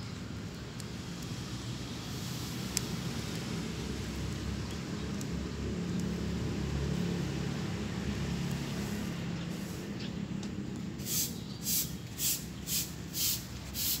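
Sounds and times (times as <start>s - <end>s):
low engine-like hum: 0.0s - 13.8s
short hissing strokes: 8.6s - 10.0s, 11.0s - 14.0s.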